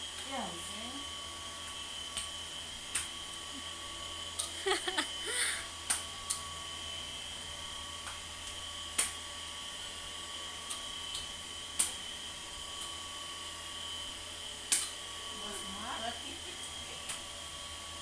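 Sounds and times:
electric fan humming: 0.0s - 18.0s.

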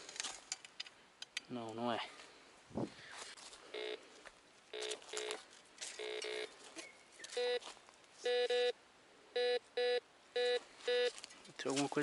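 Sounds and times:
metal detector beeps: 3.8s - 4.0s, 4.7s - 5.4s, 6.0s - 6.5s, 7.3s - 7.6s, 8.2s - 8.8s, 9.4s - 11.2s.

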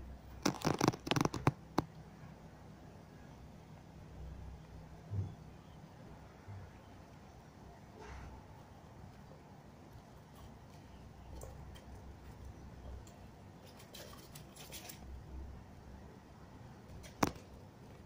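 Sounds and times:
small pet scratching and rustling: 0.4s - 1.6s, 13.5s - 15.2s.

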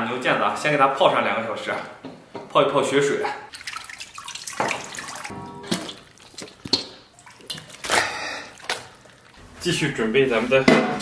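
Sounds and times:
water sloshing and splashing: 3.5s - 9.6s.

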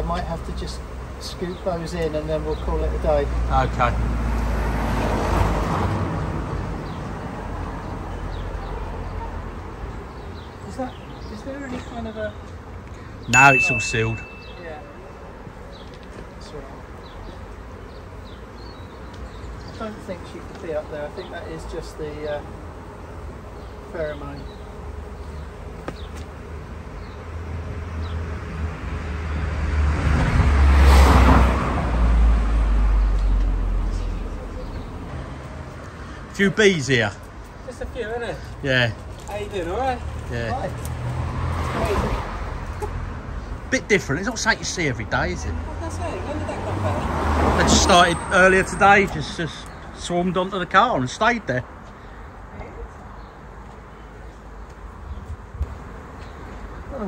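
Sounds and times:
vehicle passing: 0.0s - 57.0s
car driving past: 2.7s - 8.7s, 27.9s - 36.4s, 40.0s - 43.7s, 45.5s - 49.5s.

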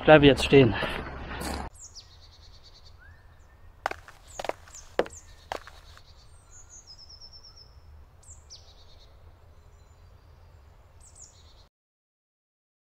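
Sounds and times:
small birds trilling: 1.7s - 11.7s.

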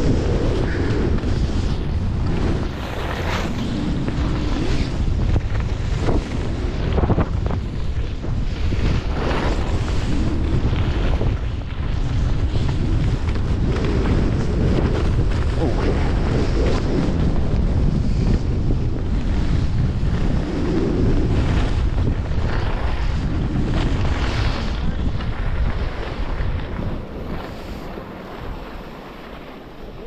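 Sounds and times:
wind rushing over microphone: 0.0s - 30.0s
skis hissing on snow: 27.2s - 30.0s.

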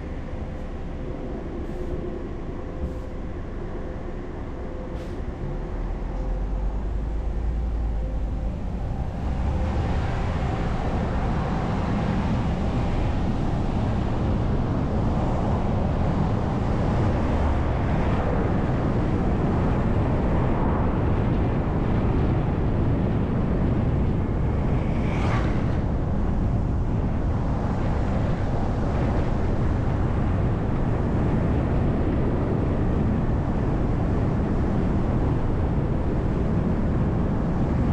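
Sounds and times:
bus engine: 0.0s - 20.0s
road noise: 0.0s - 20.4s, 21.1s - 30.2s.

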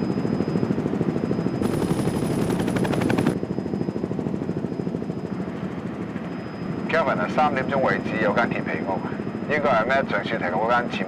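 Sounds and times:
helicopter rotor chopping: 1.6s - 3.4s.

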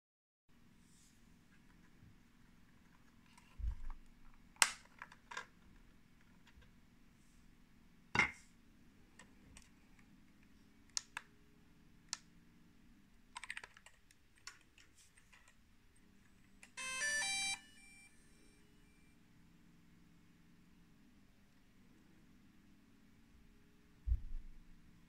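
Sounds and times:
plastic clicks and snaps: 4.5s - 5.5s, 10.3s - 11.3s.

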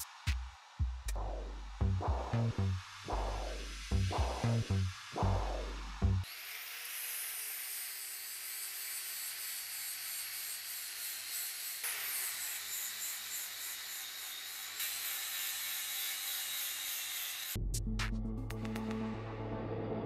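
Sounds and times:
angle grinder grinding metal: 3.1s - 17.6s.

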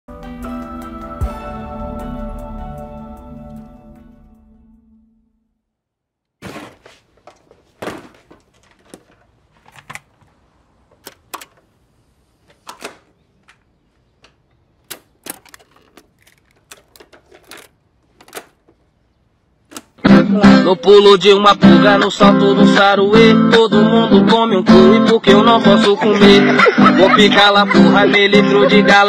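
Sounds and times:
plastic clicks and clunks: 7.3s - 10.3s, 10.9s - 11.7s, 12.5s - 18.8s, 19.7s - 20.0s.

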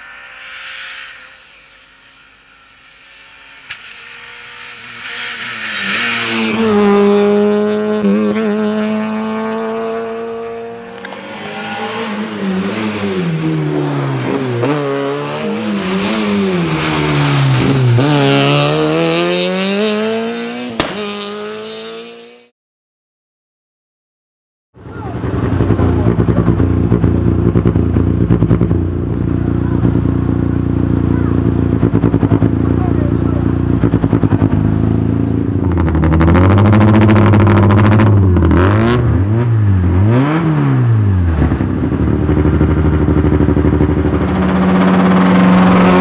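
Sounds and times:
rally car engine revving: 3.3s - 22.5s, 24.8s - 46.0s
sharp crack: 20.8s - 21.3s.

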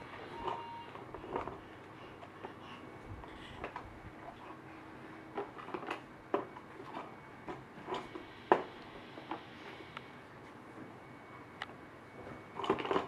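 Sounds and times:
plastic toys clicking and clacking: 12.6s - 13.0s.

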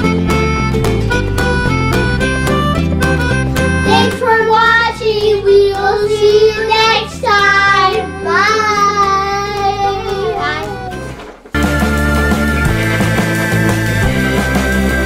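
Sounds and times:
background music with steady beat: 0.0s - 15.0s
children singing: 3.9s - 11.1s.

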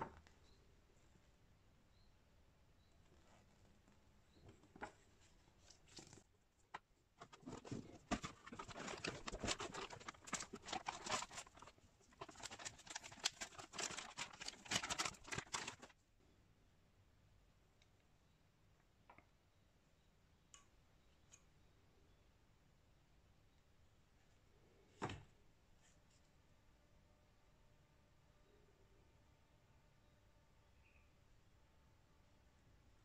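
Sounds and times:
plastic packaging crinkling: 7.2s - 15.9s.

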